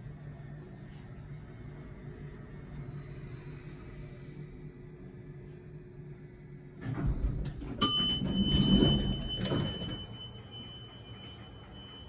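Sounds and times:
elevator doors sliding open: 6.7s - 12.0s
elevator chime ding: 7.8s - 12.0s.

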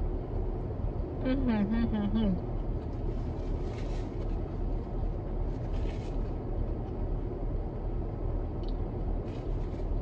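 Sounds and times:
low rumble in car cabin: 0.0s - 10.0s
faint short rustles: 2.9s - 6.4s, 9.2s - 10.0s.

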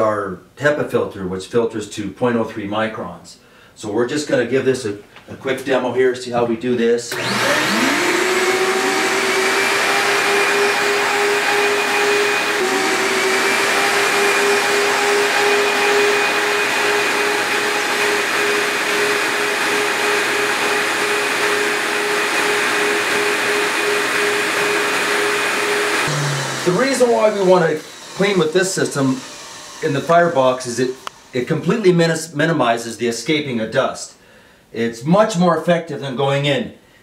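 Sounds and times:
vacuum cleaner whining: 7.1s - 32.4s.

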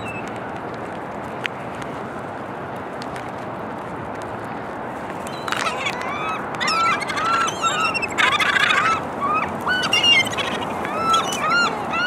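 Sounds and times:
gulls calling: 0.0s - 0.4s, 5.2s - 12.0s.

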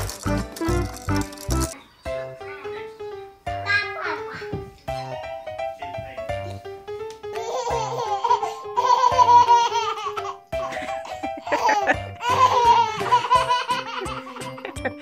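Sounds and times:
background music: 0.0s - 15.0s
baby laughing: 7.3s - 15.0s.

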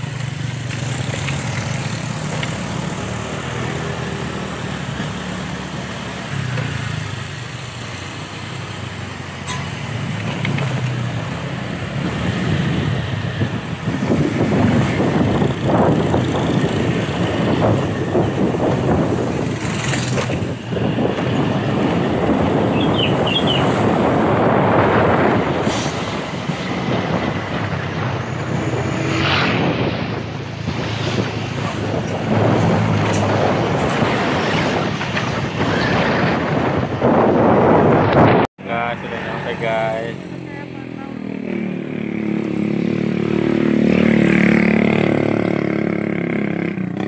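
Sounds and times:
wind rushing over microphone: 9.9s - 47.0s.

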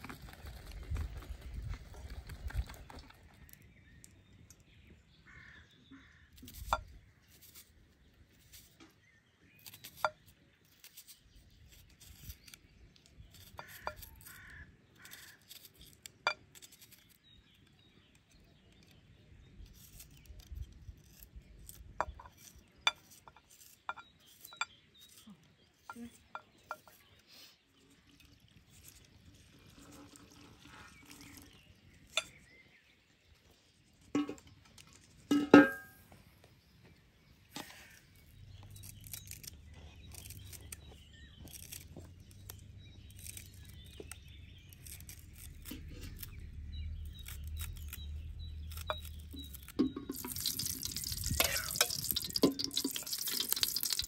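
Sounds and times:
knife cutting onion: 13.2s - 17.2s
metal pots clinking: 34.2s - 34.5s, 35.3s - 36.0s, 49.8s - 54.0s.

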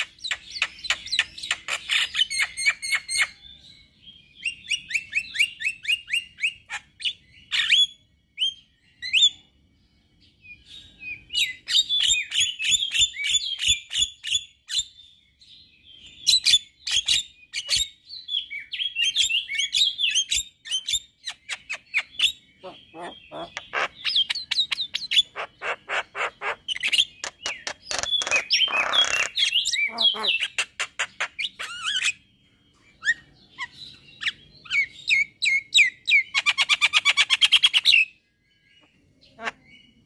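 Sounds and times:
bird chattering chirps: 0.0s - 3.4s, 4.4s - 9.4s, 18.7s - 40.0s.

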